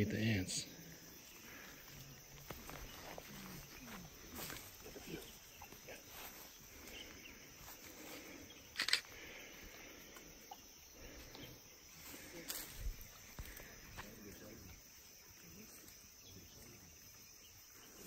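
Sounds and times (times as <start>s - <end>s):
faint forest background: 0.0s - 18.0s
undergrowth rustling and crackling: 1.0s - 10.4s, 11.0s - 16.8s.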